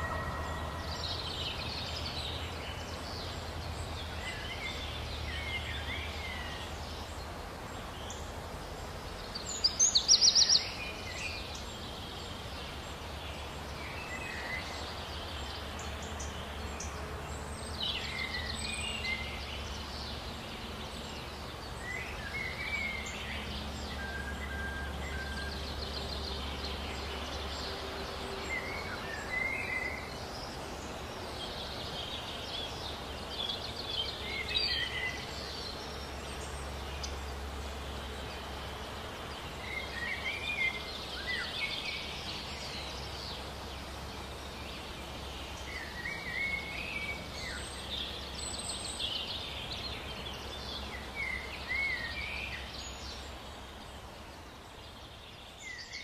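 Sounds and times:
low hum: 0.0s - 2.6s
birds chirping: 0.0s - 56.0s.

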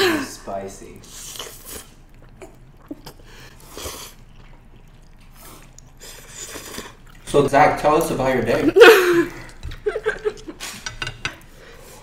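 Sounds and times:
chewing sounds: 0.8s - 8.2s
people slurping noodles: 1.0s - 7.4s.

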